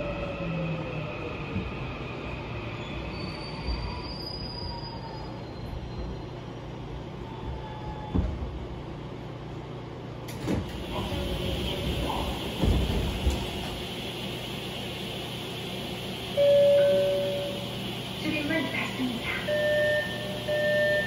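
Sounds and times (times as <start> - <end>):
train wheels rumbling on track: 10.2 - 21.0.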